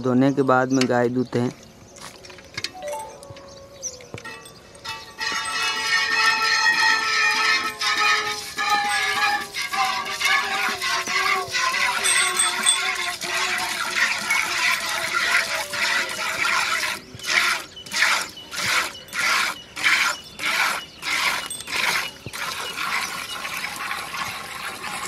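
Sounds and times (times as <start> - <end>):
milk squirting into steel bucket: 5.2 - 25.0.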